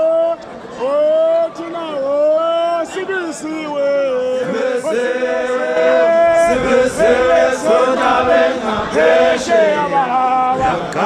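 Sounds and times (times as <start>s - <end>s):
group of voices chanting: 4.4s - 11.0s.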